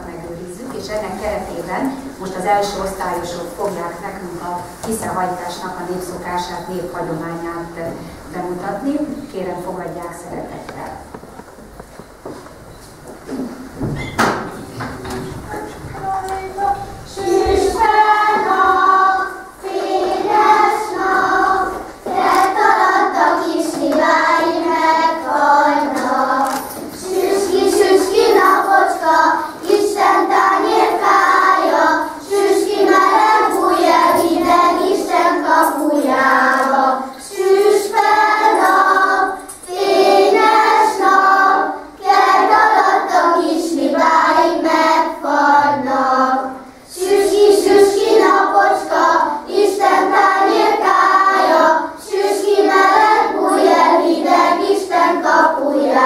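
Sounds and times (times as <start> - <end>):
children singing folk song: 14.2 - 56.0.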